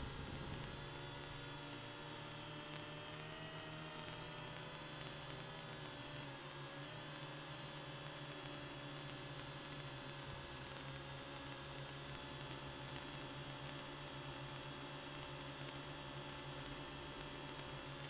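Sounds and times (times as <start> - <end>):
quadcopter motors whining: 0.0 - 18.0.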